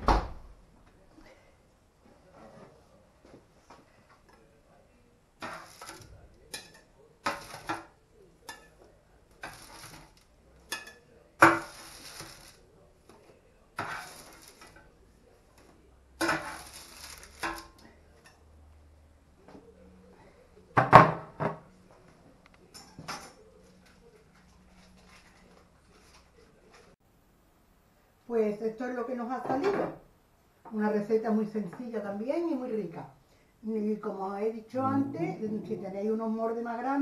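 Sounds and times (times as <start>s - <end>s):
metal spatula scraping baking tray: 5.4s - 7.9s, 9.4s - 12.6s, 13.8s - 14.9s, 16.2s - 18.3s
plate clattering on counter: 5.4s - 7.9s, 9.4s - 12.4s.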